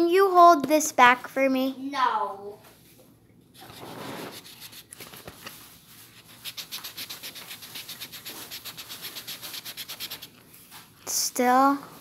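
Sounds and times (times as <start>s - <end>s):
eraser rubbing on paper: 3.6s - 4.9s, 6.0s - 10.4s.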